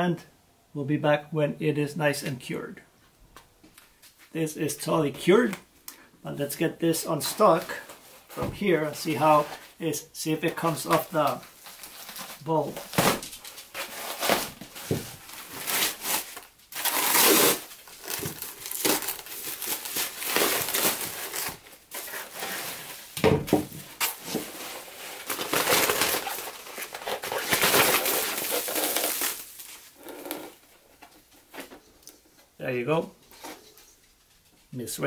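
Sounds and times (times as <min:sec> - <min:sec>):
plastic pad crinkling and tearing: 0:10.5 - 0:23.1, 0:24.0 - 0:31.7.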